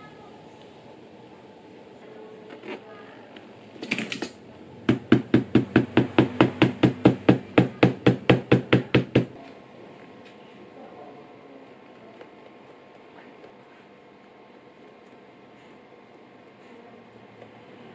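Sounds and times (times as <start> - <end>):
tool tapping leather: 4.9 - 9.4.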